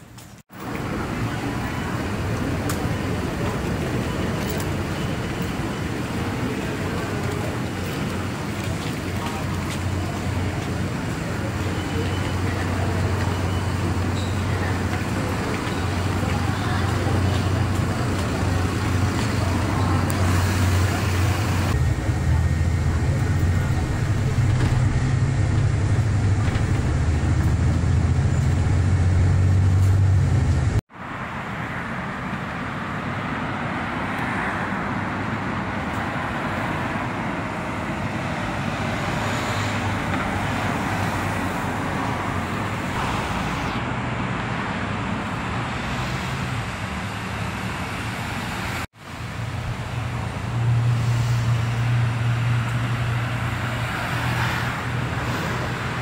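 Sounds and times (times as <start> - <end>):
cars passing on road: 0.0 - 56.0
loud deep rumble: 16.0 - 30.8.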